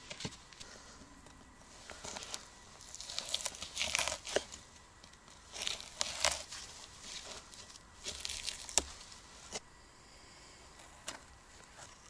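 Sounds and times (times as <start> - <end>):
knife crunching through frozen fish: 1.9 - 4.6, 5.3 - 9.6.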